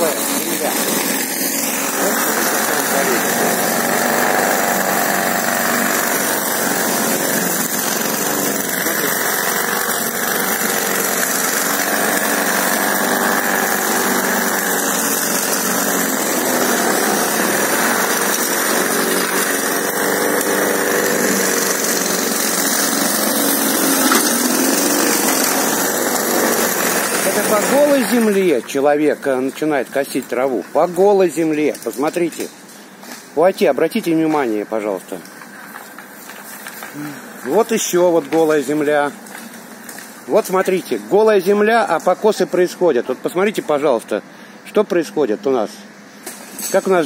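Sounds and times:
lawn mower running: 0.0 - 28.7, 35.4 - 42.4.

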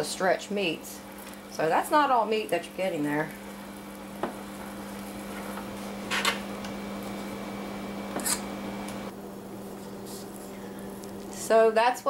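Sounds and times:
metal spoon scraping metal plate: 8.2 - 8.5.

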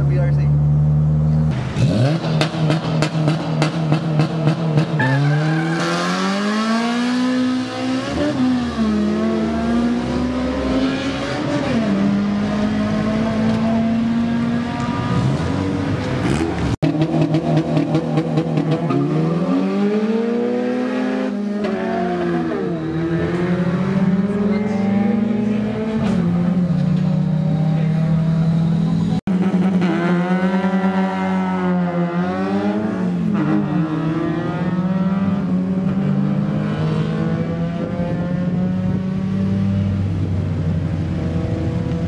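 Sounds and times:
race car engine revving: 0.0 - 42.0.

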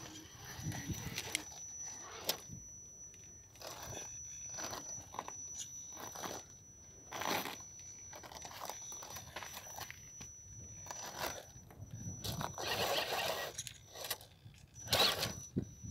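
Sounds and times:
faint high whine: 0.0 - 15.9
toy car tyres crunching on sandstone: 3.5 - 11.6, 12.2 - 14.3.

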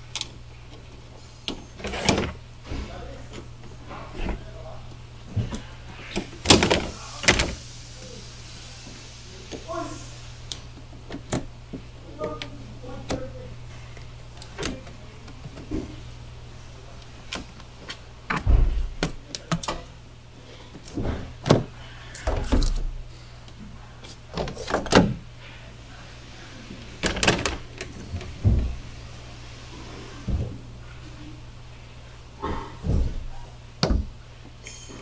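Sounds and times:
steady low hum: 0.0 - 35.0
heavy thumps: 18.3 - 19.2, 32.4 - 34.2.

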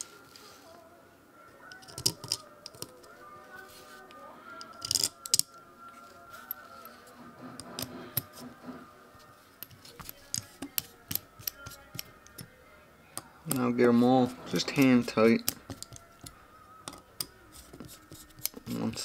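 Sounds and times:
small screws clicking and clinking: 1.7 - 3.1, 4.6 - 5.6, 14.7 - 17.3.

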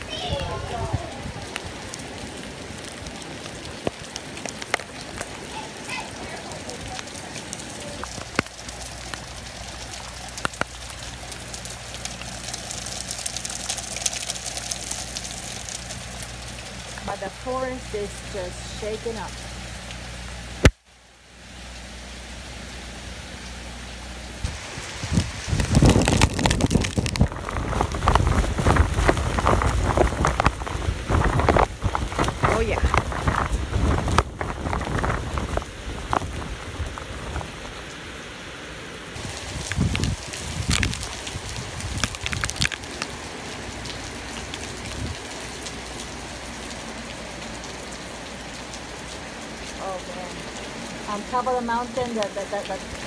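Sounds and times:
strong wind gusts on microphone: 0.0 - 1.8, 24.4 - 37.7, 39.2 - 42.7, 44.8 - 45.2
heavy rain falling: 0.0 - 53.0.

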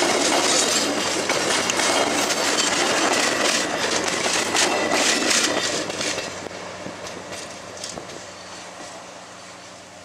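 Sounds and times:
train wheels clattering over rails: 0.0 - 9.1
faint high wheel squeal: 4.6 - 6.4, 7.9 - 10.0.

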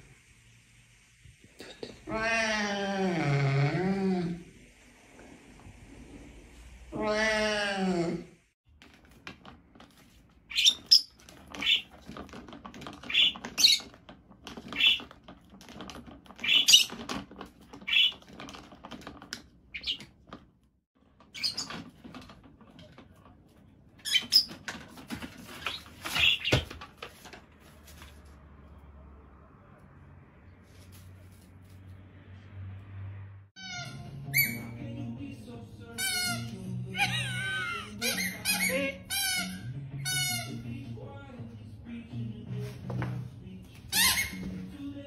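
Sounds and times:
parrot squeaking: 10.5 - 11.9, 13.0 - 13.9, 14.7 - 15.1, 16.4 - 17.0, 17.8 - 18.2, 19.7 - 20.0, 25.6 - 26.6, 33.6 - 34.8, 36.0 - 40.6, 43.9 - 44.6.

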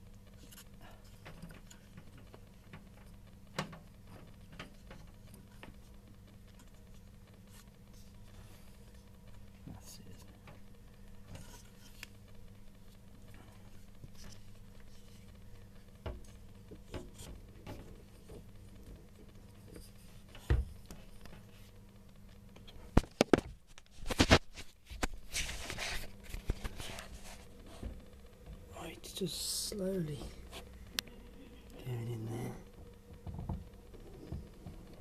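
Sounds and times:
faint taps and scrapes: 0.4 - 21.8, 22.5 - 28.1.

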